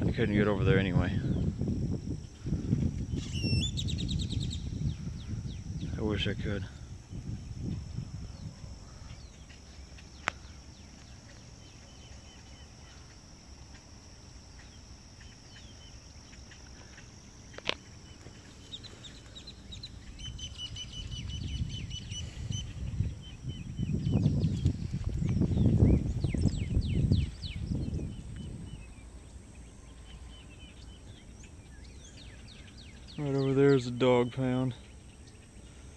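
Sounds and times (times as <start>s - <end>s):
wind rumble on microphone: 0.0s - 11.8s, 19.4s - 29.7s
birds chirping: 0.0s - 35.9s.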